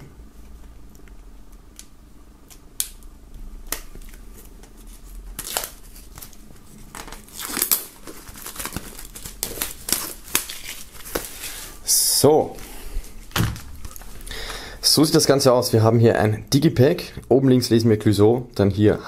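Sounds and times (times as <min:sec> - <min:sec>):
plastic film crinkling: 0:03.7 - 0:12.0.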